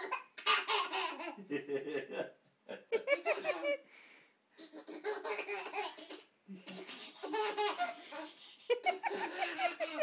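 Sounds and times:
baby laughing: 0:00.0 - 0:01.5, 0:03.0 - 0:03.8, 0:04.6 - 0:10.0
adult laughing: 0:01.4 - 0:03.8, 0:08.7 - 0:10.0.

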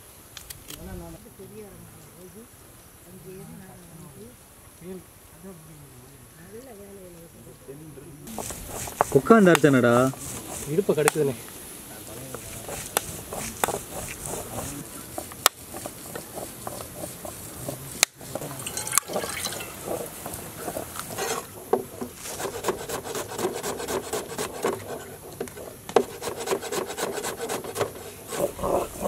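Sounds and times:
stone roller grinding on stone slab: 0:08.3 - 0:11.2, 0:12.2 - 0:29.0
knife chopping on cutting board: 0:12.7 - 0:14.7.

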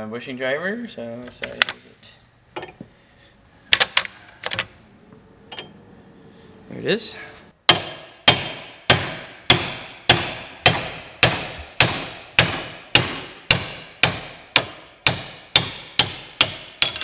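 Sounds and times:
hammer striking metal: 0:07.7 - 0:17.0.

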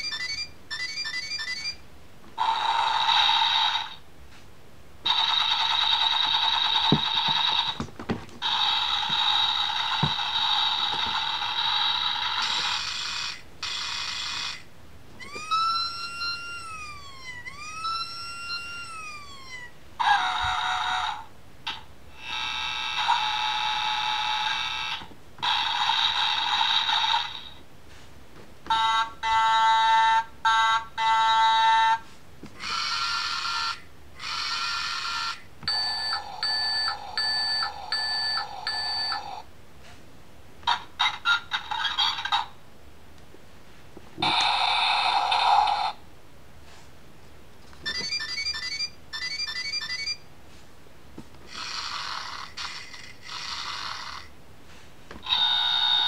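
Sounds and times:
siren rising and falling: 0:15.3 - 0:19.7
electronic beeping: 0:35.7 - 0:39.3.

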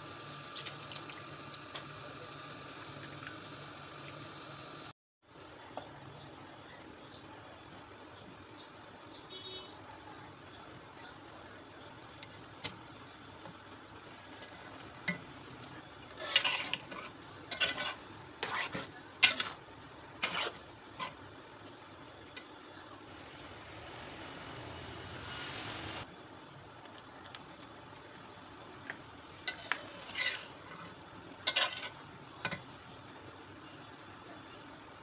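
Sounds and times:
spatula scraping metal pan: 0:16.0 - 0:21.2, 0:29.4 - 0:32.0
steady hiss: 0:22.7 - 0:26.5.

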